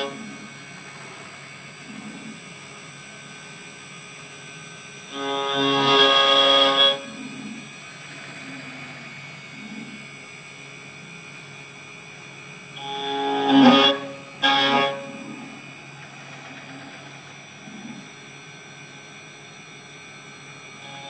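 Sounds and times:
spindle high whine: 0.0 - 21.0
metal cutting squeal: 5.1 - 7.2, 12.8 - 15.4.

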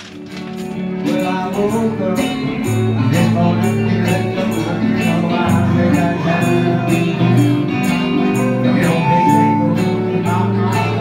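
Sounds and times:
strummed acoustic guitars: 0.0 - 11.0.

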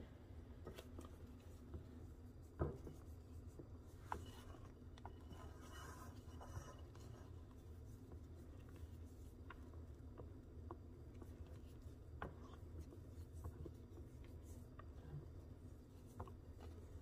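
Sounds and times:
spatula scraping glass bowl: 4.4 - 7.3.

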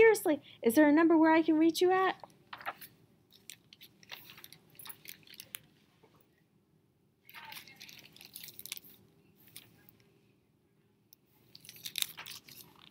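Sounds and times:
paper pages flipping: 2.5 - 5.7, 7.3 - 9.9, 11.4 - 12.9.

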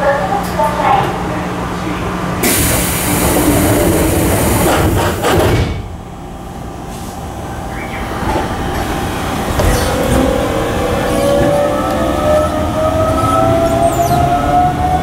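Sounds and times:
train low rumble: 0.0 - 15.0
air hiss of train doors: 2.4 - 5.4, 6.8 - 7.3.

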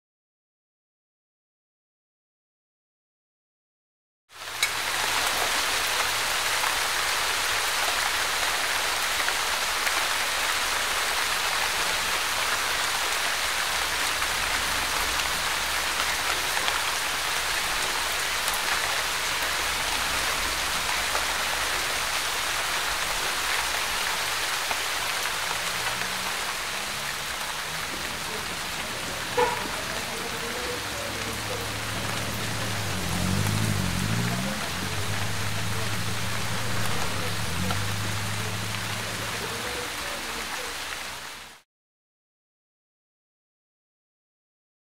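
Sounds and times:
snowfall hissing: 4.7 - 40.7.

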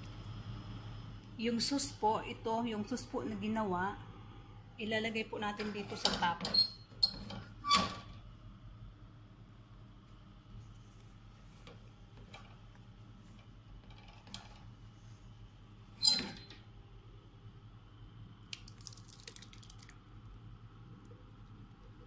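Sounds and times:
sauce pouring clicks and squishes: 18.5 - 20.0.

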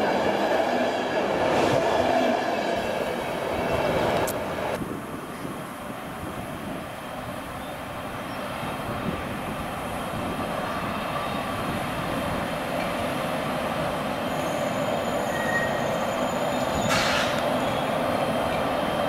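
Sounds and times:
train wheels rumbling on rail: 0.0 - 19.0
high squeal of wheels or brakes: 14.1 - 18.0.

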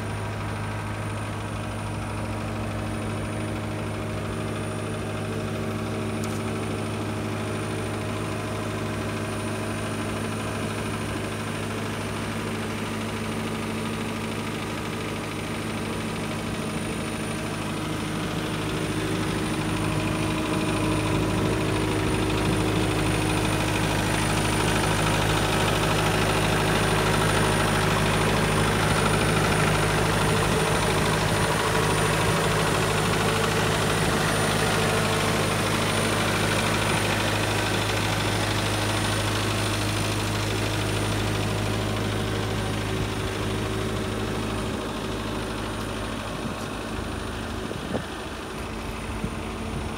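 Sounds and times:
diesel engine idling: 0.0 - 49.9.

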